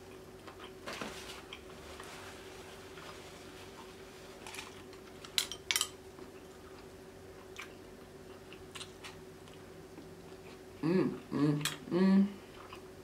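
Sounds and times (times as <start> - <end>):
faint steady hum: 0.0 - 13.0
person chewing food: 6.1 - 13.0.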